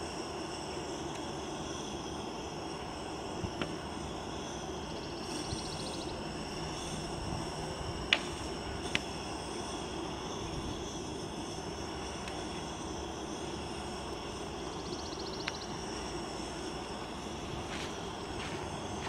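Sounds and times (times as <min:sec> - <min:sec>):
camp stove burner roaring: 0:00.0 - 0:19.0.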